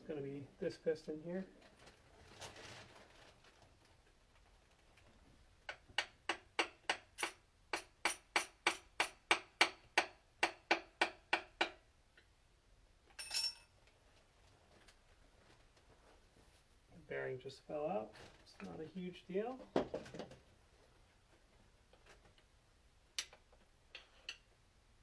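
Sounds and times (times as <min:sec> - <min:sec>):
hammer tapping metal: 0:05.7 - 0:11.8.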